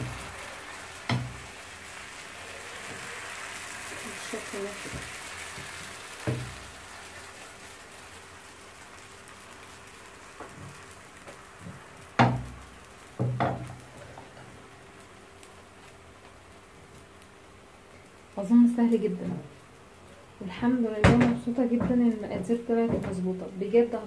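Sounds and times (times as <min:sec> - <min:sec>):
batter sizzling in a pan: 0:00.0 - 0:24.0
pan knocking on metal grate: 0:01.1 - 0:01.4, 0:11.6 - 0:12.6, 0:13.2 - 0:13.8, 0:21.0 - 0:23.2.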